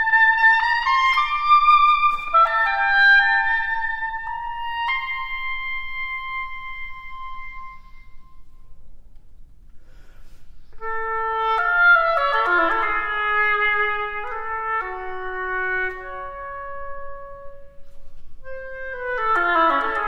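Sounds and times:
solo oboe: 0:00.0 - 0:08.8, 0:10.7 - 0:20.0.

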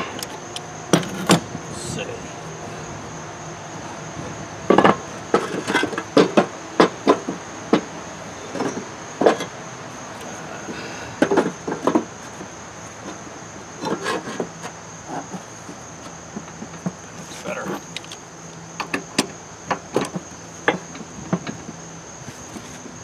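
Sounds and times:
wooden knocks and clatter: 0:04.7 - 0:07.9, 0:18.8 - 0:21.8.

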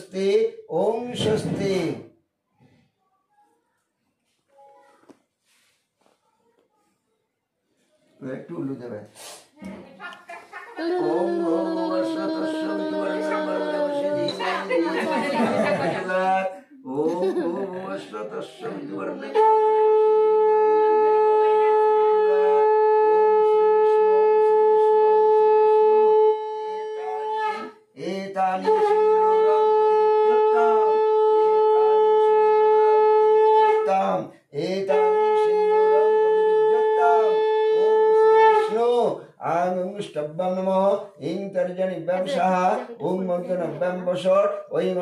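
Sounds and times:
conch shell blasts: 0:19.3 - 0:27.8, 0:28.7 - 0:34.1, 0:34.9 - 0:39.0.

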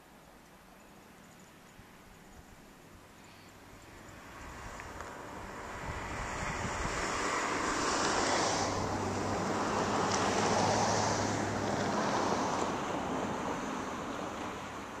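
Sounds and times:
vehicle passing: 0:04.0 - 0:15.0.

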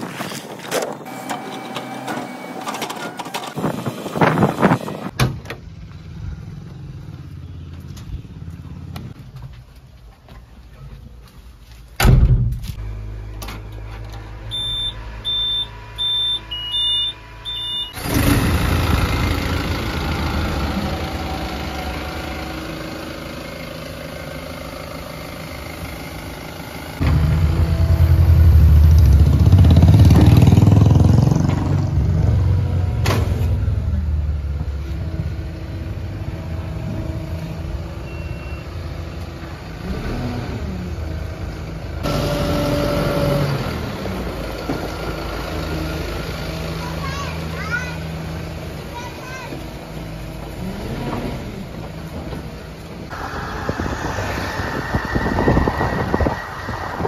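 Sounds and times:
diesel engine starting and running: 0:00.0 - 0:09.8, 0:12.0 - 0:57.0
short high electronic beeps: 0:14.5 - 0:18.0.

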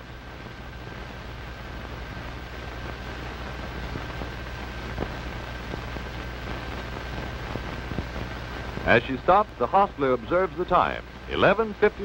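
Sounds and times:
film soundtrack hiss: 0:00.0 - 0:12.0.

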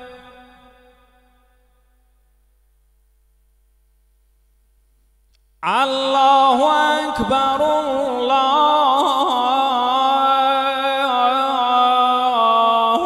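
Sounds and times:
man chanting call to prayer: 0:00.0 - 0:01.4, 0:05.6 - 0:13.0.

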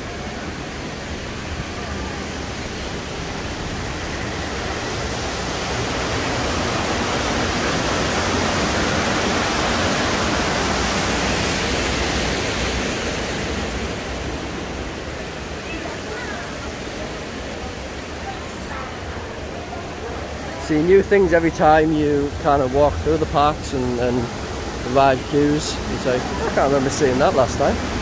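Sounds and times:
waterfall rushing: 0:00.0 - 0:28.0.

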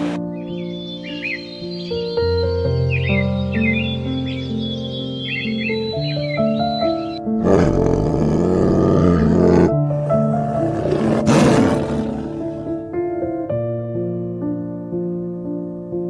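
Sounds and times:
soft piano music: 0:00.0 - 0:16.0
tiger roaring: 0:07.4 - 0:12.9.

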